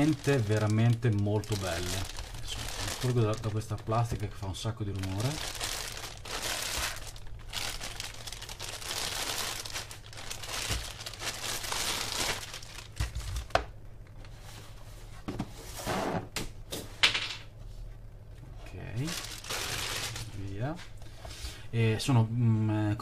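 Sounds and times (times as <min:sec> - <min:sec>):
plastic bag crinkling: 0:00.0 - 0:13.6, 0:19.0 - 0:20.8.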